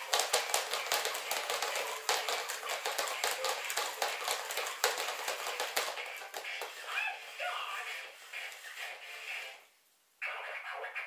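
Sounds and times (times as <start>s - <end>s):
toy doll clattering on wooden floor: 0.0s - 6.8s.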